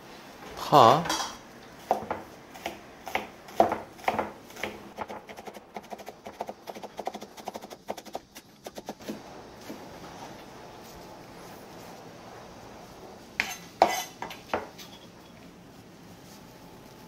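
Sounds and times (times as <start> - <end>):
knife chopping on cutting board: 1.8 - 9.2.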